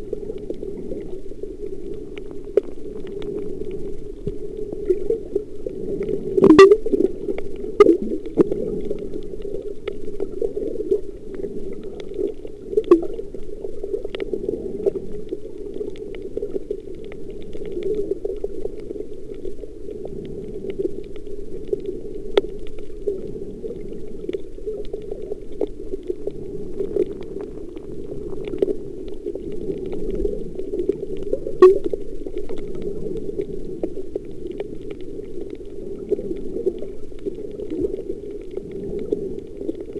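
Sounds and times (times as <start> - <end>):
underwater clicks and crackles: 0.0 - 39.9
underwater rushing: 0.0 - 39.9.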